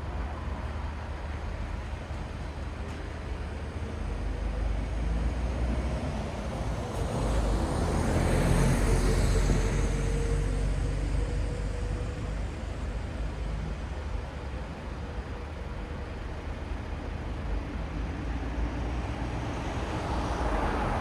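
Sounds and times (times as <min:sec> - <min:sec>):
traffic rumble of engines and tyres: 0:00.0 - 0:21.0.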